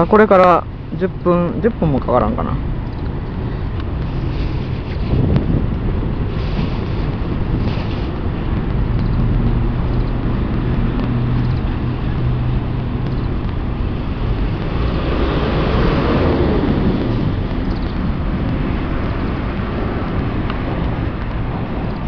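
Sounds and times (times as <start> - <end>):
road vehicle passing: 0.0 - 22.0
wind buffeting microphone: 0.0 - 22.0.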